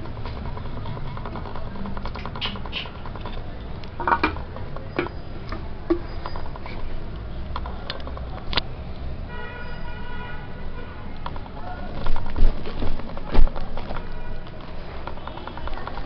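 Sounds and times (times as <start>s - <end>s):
hands tapping plastic bottle: 0.0s - 6.7s, 11.2s - 16.0s.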